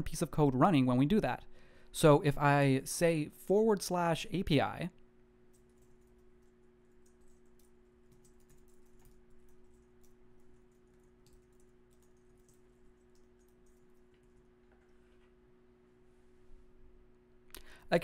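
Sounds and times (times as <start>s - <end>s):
steady low hum: 0.0s - 18.0s
keyboard typing: 5.5s - 15.0s.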